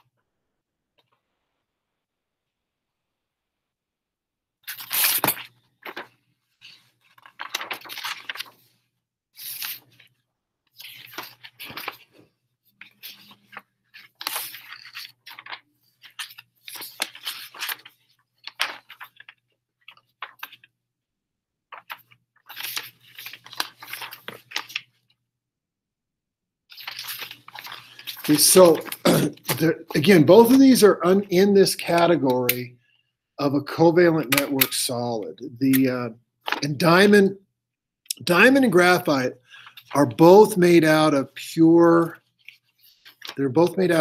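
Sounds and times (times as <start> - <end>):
rustling and crinkling handling: 4.8 - 20.7, 21.7 - 25.2, 26.7 - 32.3, 42.0 - 44.0.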